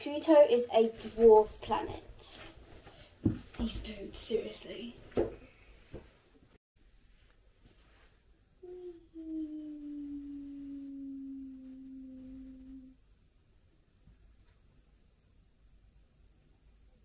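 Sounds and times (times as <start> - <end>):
child humming: 8.6 - 13.0.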